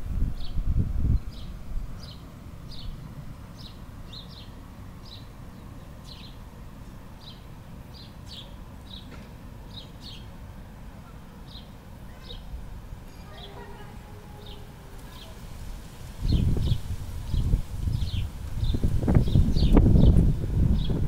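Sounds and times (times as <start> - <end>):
steady low rumble: 0.0 - 8.0, 14.2 - 21.0
bird high chirps: 13.1 - 15.4.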